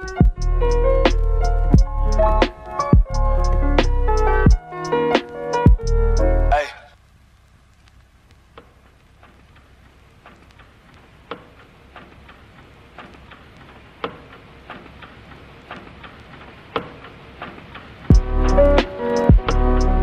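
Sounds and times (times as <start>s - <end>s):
loud music: 18.1s - 20.0s.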